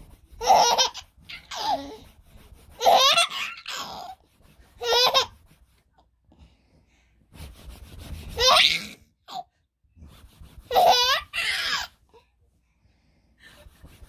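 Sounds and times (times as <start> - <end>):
baby laughing and squealing: 0.4 - 2.0, 2.8 - 4.2, 4.8 - 5.4, 8.4 - 9.5, 10.7 - 12.0.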